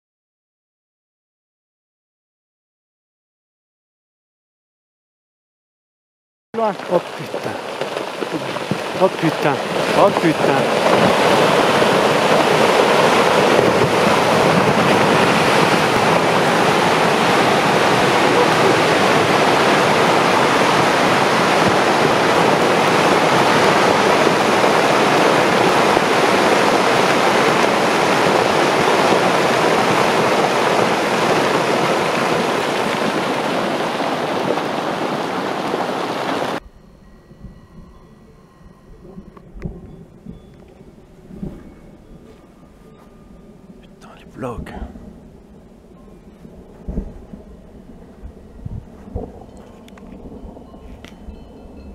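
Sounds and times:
rockslide roaring: 0:06.6 - 0:36.6.

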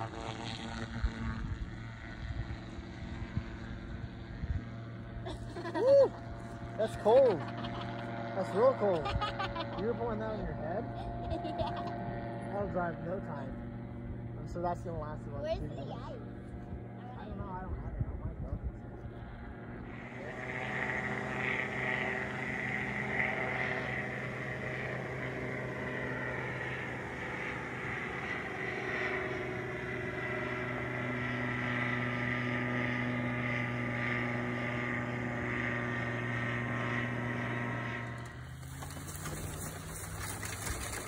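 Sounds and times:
small plane engine and propeller: 0:00.0 - 0:41.0.

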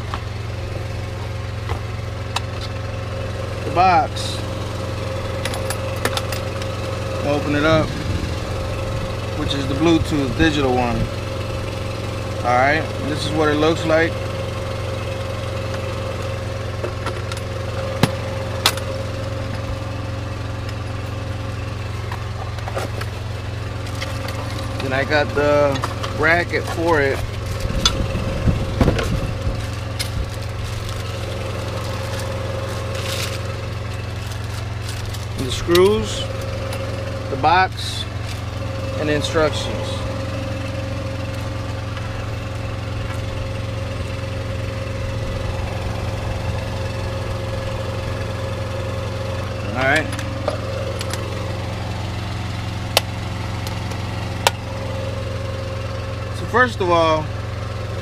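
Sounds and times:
truck engine idling: 0:00.0 - 0:58.0
plastic bag rustling: 0:29.5 - 0:35.3.

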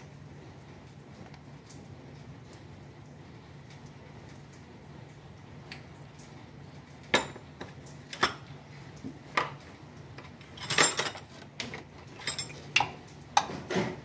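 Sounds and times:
low steady hum: 0:00.0 - 0:14.0
metal tool clinking on bolts: 0:10.4 - 0:11.4.

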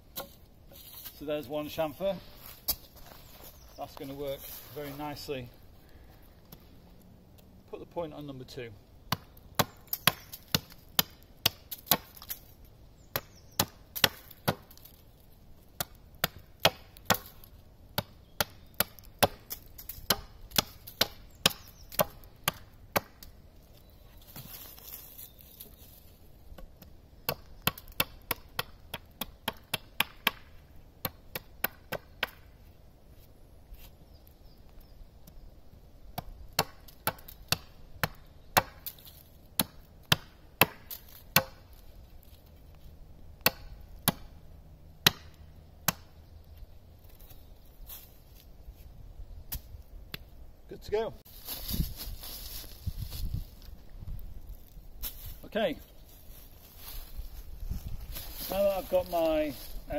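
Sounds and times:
axe chopping wood: 0:09.1 - 0:12.3, 0:13.1 - 0:14.8, 0:15.8 - 0:23.3, 0:26.6 - 0:32.5, 0:36.2 - 0:39.0, 0:39.6 - 0:41.7, 0:43.4 - 0:44.4, 0:45.0 - 0:46.1.

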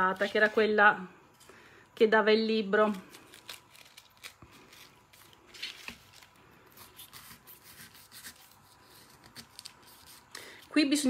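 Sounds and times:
knife cutting pineapple rind: 0:02.8 - 0:10.8.

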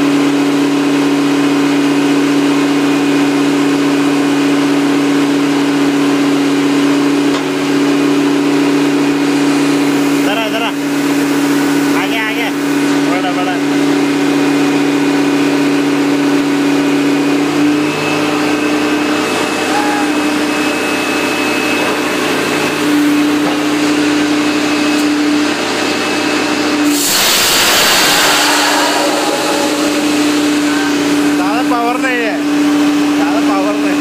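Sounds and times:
drilling rig drone: 0:00.0 - 0:34.0
humming tone: 0:17.9 - 0:22.0, 0:27.8 - 0:31.8
rush of air and water spray: 0:26.8 - 0:31.4.

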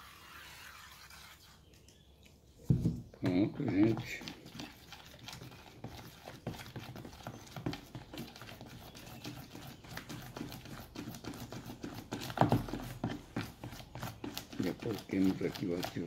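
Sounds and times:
spoon scraping plastic bowl: 0:03.2 - 0:16.0.

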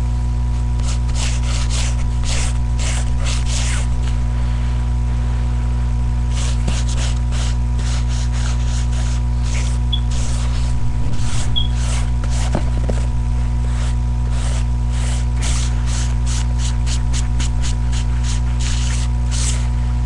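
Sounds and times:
low electrical hum: 0:00.0 - 0:20.0
pencil scratching on paper: 0:00.8 - 0:03.9, 0:06.3 - 0:13.0, 0:13.6 - 0:19.7.

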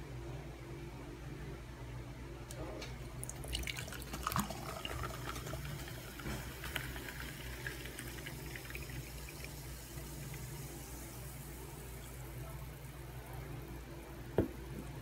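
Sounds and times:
steady low hum: 0:00.0 - 0:15.0
drink pouring into glass: 0:03.2 - 0:13.2
soda fizzing: 0:03.2 - 0:15.0.

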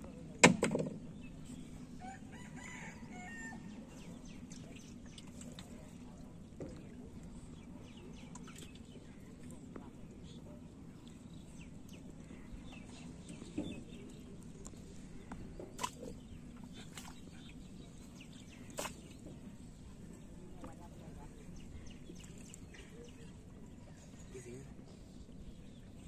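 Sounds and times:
steady low hum: 0:01.0 - 0:26.0.

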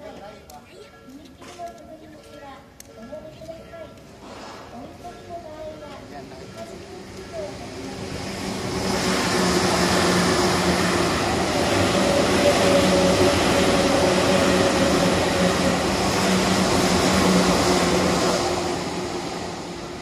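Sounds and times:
train wheels rumbling on rails: 0:05.6 - 0:20.0.

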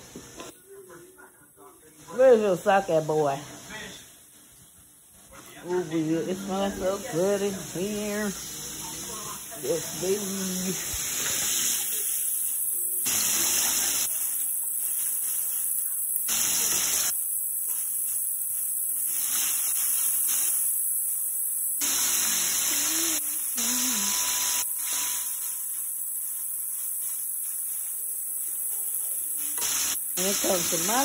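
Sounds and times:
oil bubbling and sizzling: 0:02.0 - 0:31.0.

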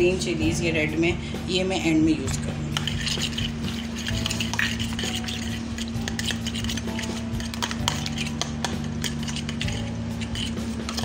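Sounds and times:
fork beating egg in plastic bowl: 0:02.2 - 0:11.0.

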